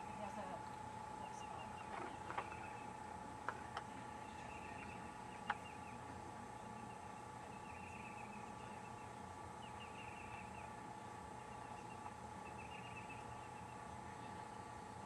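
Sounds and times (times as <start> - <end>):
faint steady hum: 0.0 - 15.0
bird chirping in high trills: 6.8 - 10.8, 11.4 - 13.9.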